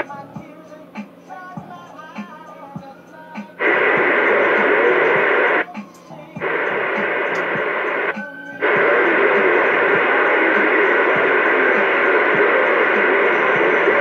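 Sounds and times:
radio static: 3.5s - 5.8s, 6.4s - 14.0s.

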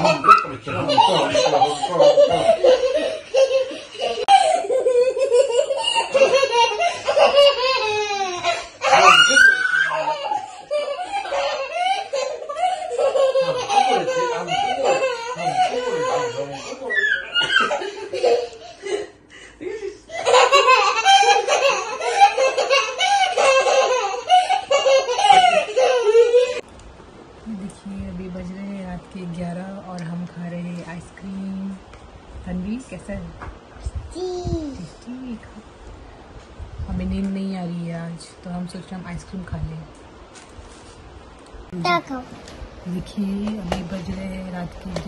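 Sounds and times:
toddler girl giggling: 0.0s - 19.1s, 19.7s - 26.6s
child and adults laughing: 0.0s - 26.6s.

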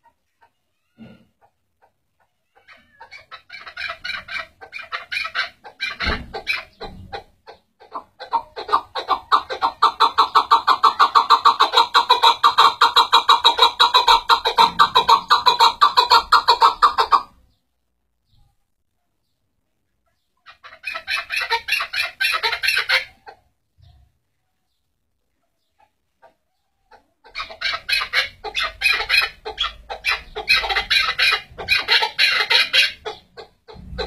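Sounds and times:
partridge clucking and chuk calls: 1.4s - 17.6s, 20.0s - 24.1s, 25.3s - 34.0s.

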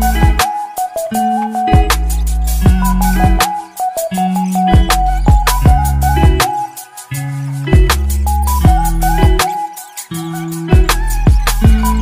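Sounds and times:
repeating higher melody: 0.0s - 12.0s
sliding deep bass notes: 1.8s - 3.4s.

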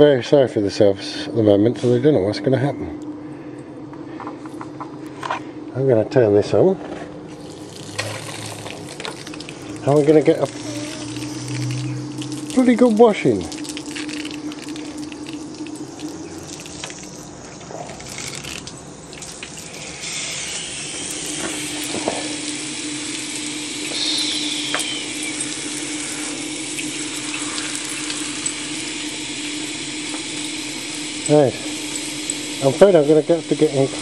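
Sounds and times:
low hum: 7.2s - 34.0s
running water spraying: 7.3s - 34.0s.

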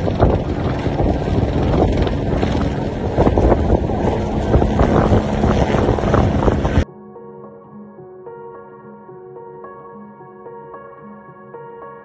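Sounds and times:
volcano rumbling roar with bursts: 0.0s - 6.8s.

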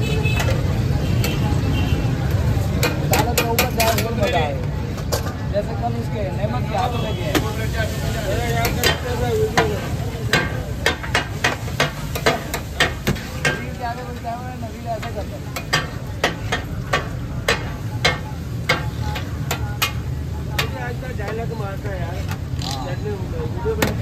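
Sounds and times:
frying sizzle: 0.0s - 24.0s
metal spatula clacking on griddle: 2.7s - 4.4s, 8.4s - 21.6s.

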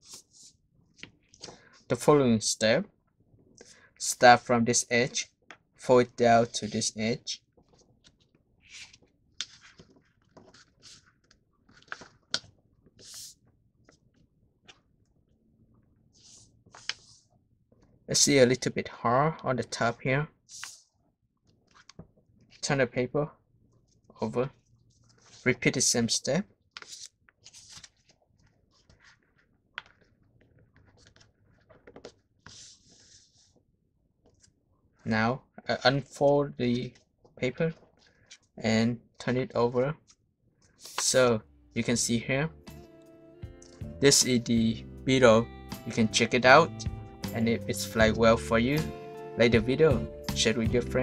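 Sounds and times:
paper rustling: 7.5s - 15.2s, 16.0s - 17.9s, 20.5s - 20.9s, 21.5s - 22.6s, 23.9s - 25.5s, 26.7s - 33.6s, 34.2s - 35.1s, 36.8s - 38.6s, 40.0s - 41.2s.

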